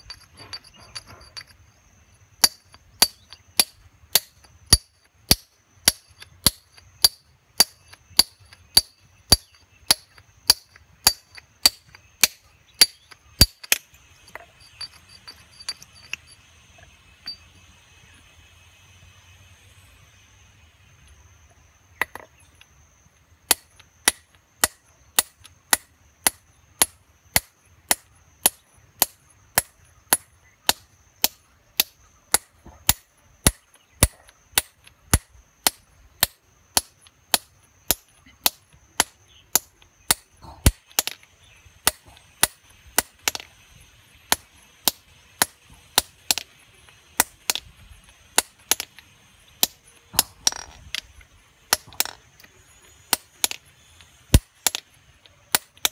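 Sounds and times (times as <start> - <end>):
hammer striking chisel on stone: 0.0 - 1.6, 2.4 - 16.4.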